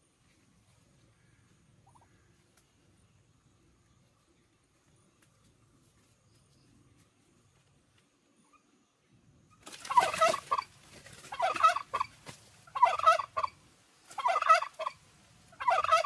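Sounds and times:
turkey gobbling: 1.8s - 2.3s, 9.8s - 16.0s.

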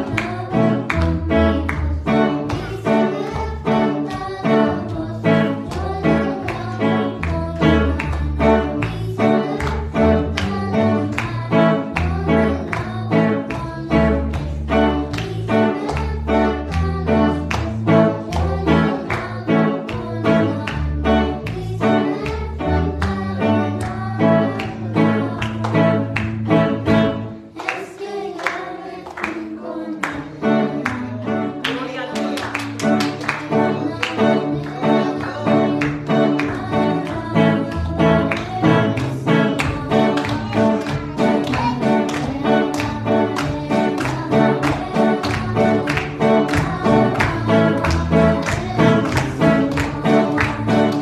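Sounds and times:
backing music with steady beat: 32.7s - 51.0s.

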